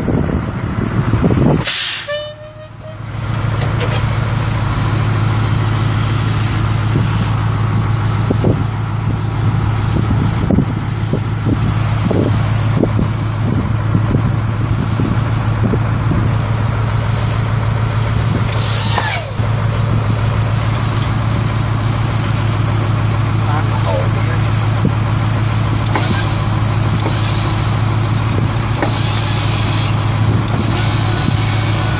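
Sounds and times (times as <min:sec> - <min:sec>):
diesel truck engine idling: 0:00.0 - 0:31.9
short hiss: 0:01.6 - 0:02.4.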